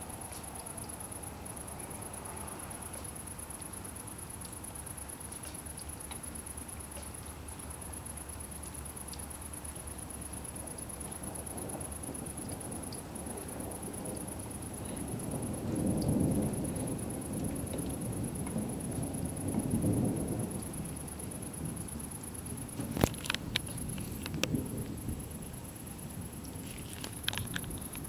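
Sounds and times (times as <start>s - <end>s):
distant thunder rumbling: 10.5s - 28.0s.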